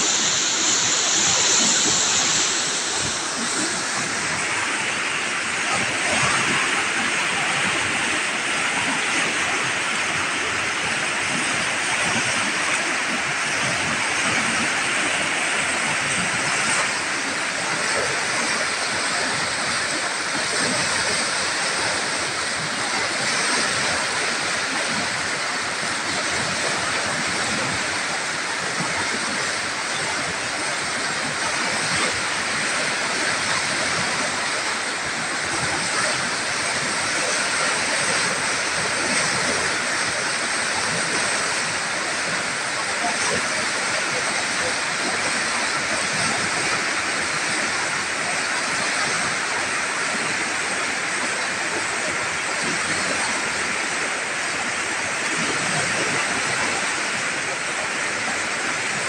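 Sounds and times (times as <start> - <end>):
flooded river rushing over rapids: 0.0 - 59.0.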